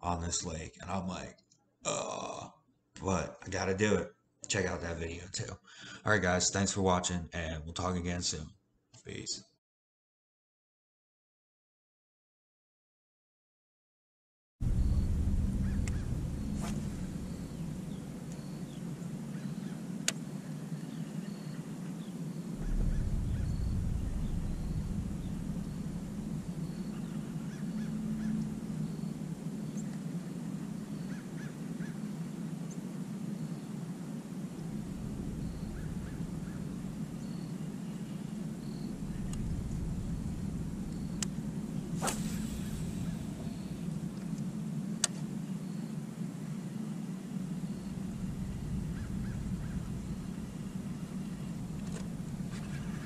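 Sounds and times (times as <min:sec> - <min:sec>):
low rumbles: 0:14.6 - 0:19.3, 0:22.5 - 0:31.1, 0:34.5 - 0:45.1, 0:47.3 - 0:53.0
low outdoor hum: 0:14.6 - 0:53.0
distant geese honking: 0:15.0 - 0:20.7, 0:22.5 - 0:32.4, 0:34.2 - 0:44.1, 0:47.5 - 0:53.0.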